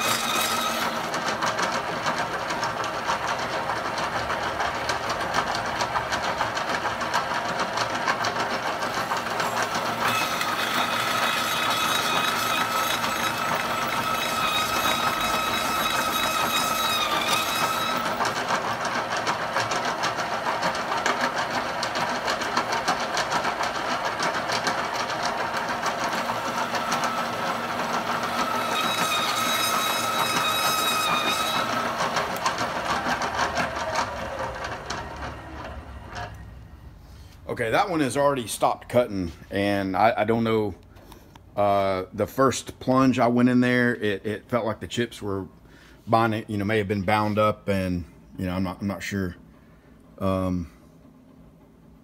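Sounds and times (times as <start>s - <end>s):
hole saw grinding into steel: 0.0s - 3.0s, 8.6s - 19.0s, 24.4s - 35.2s
milling machine whine: 0.0s - 37.9s.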